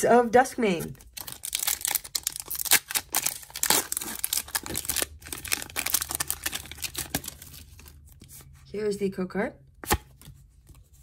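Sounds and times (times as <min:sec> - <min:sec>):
foil wrapper tearing and crinkling: 0:01.0 - 0:08.0.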